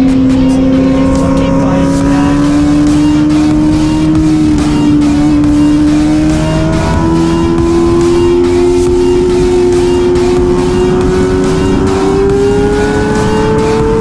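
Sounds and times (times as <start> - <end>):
motorcycle engine at high revs: 0.0 - 14.0
rushing noise: 0.0 - 14.0.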